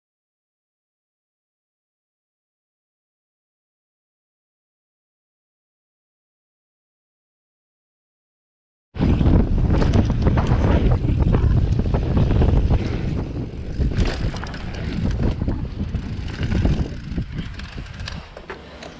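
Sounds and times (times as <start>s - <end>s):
wind rush on microphone: 9.0s - 18.4s
bike rattling and knocking: 9.0s - 18.9s
bike tyre noise on gravel: 9.0s - 18.9s.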